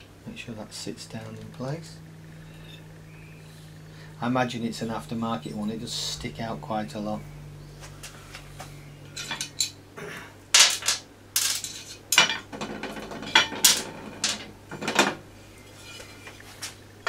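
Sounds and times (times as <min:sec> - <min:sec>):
metal tools clinking: 0:09.1 - 0:09.8, 0:10.6 - 0:12.5.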